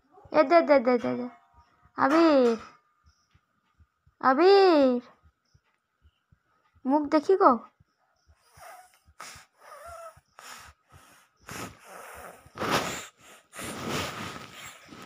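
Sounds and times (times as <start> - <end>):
toddler huffing and snorting: 8.4 - 15.0.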